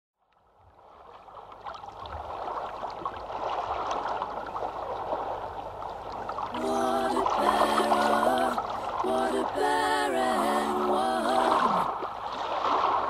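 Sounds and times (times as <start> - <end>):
babbling stream: 4.0 - 13.0.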